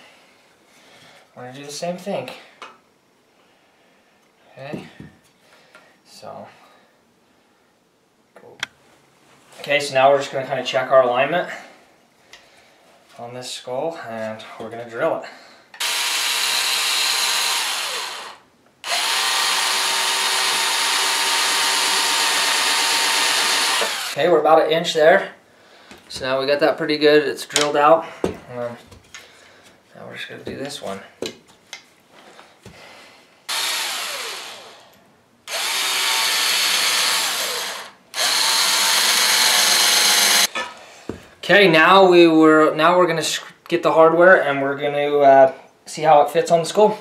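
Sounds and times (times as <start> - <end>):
cordless drill boring into antler: 15.8 - 24.2, 33.5 - 34.9, 35.5 - 40.5.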